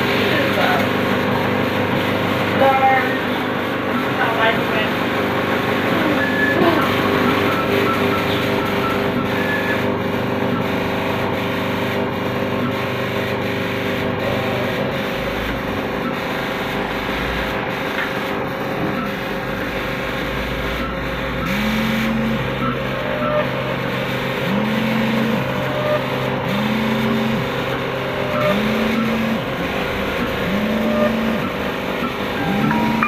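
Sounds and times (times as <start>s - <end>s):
line matrix printer printing: 0.0s - 33.0s.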